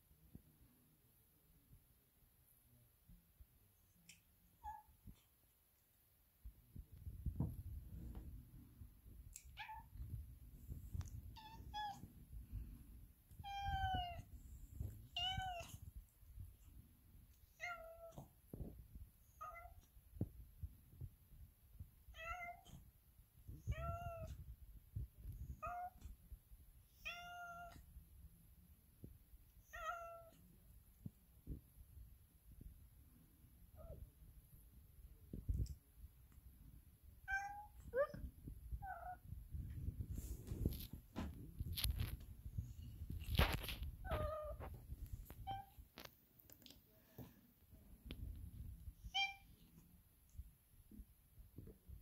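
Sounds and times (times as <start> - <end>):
cat meowing: 11.3 - 12.0, 13.4 - 14.3, 37.3 - 39.2.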